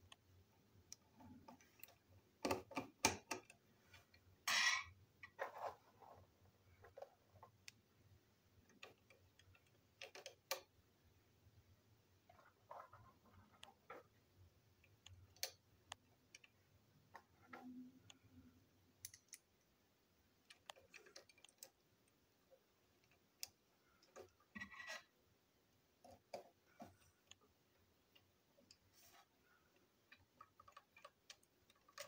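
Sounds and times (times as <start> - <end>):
plastic toy parts clicking: 8.6 - 10.8, 20.4 - 22.2.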